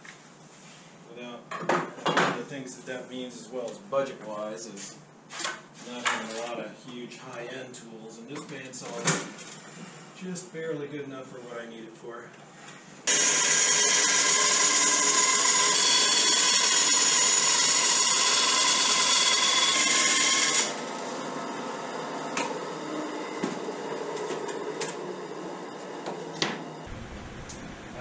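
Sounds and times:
bandsaw cutting plywood: 13.1s - 20.8s.

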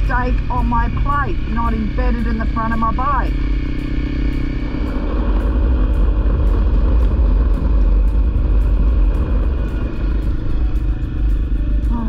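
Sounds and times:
motorcycle engine running: 0.0s - 12.0s
wind rush on microphone: 0.0s - 12.0s.

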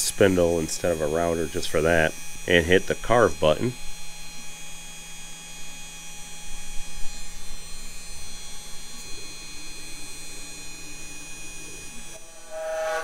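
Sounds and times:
router spindle whine: 7.1s - 13.0s.

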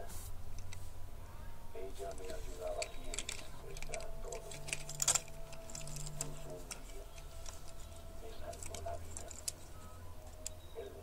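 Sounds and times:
faint steady hum: 0.0s - 11.0s
toy trucks clicking and tapping: 2.0s - 10.6s.

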